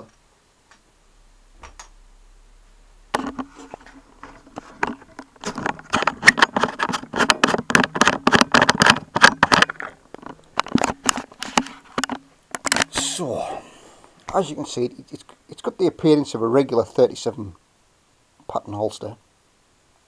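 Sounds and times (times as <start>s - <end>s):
camera handling clicks and rustles: 3.2s - 12.9s.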